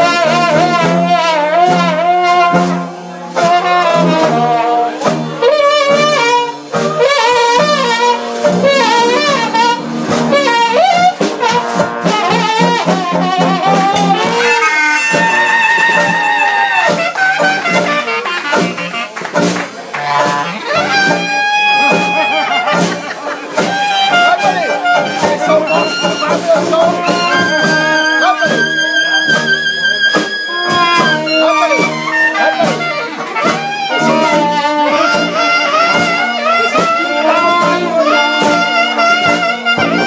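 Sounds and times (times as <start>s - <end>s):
brass band playing lively tune: 0.0s - 40.0s.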